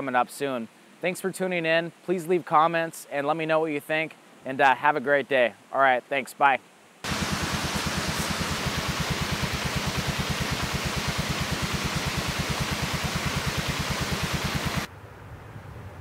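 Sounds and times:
atv engine idling: 0:07.1 - 0:14.9.

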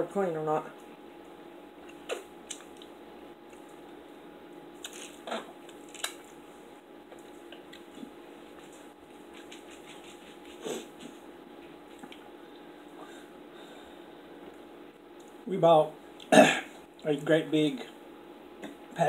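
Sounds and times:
faint steady hum: 0:00.0 - 0:19.0
soft chewing: 0:04.8 - 0:06.4, 0:07.1 - 0:13.1.

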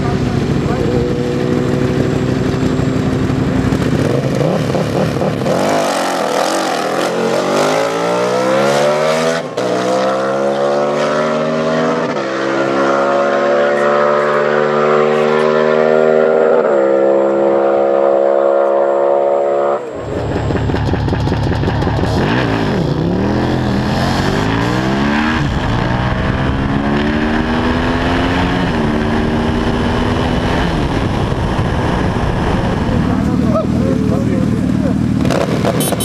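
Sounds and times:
motorcycle engine accelerating: 0:00.0 - 0:36.0.

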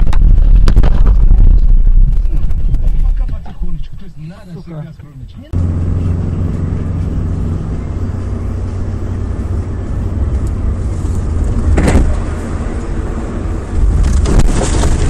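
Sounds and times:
car engine drone and road noise: 0:00.0 - 0:15.0
car crunching into snow: 0:13.8 - 0:15.0.

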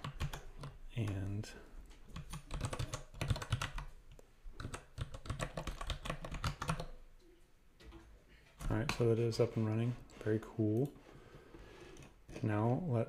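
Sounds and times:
computer keyboard typing: 0:00.0 - 0:01.2, 0:02.1 - 0:03.9, 0:04.6 - 0:07.0.

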